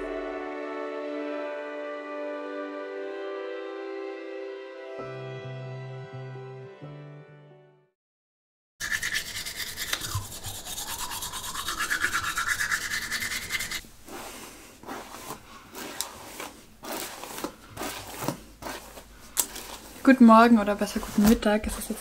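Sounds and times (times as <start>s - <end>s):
toothbrush scrubbing: 8.8s - 20.0s
soft rustling: 13.9s - 22.0s.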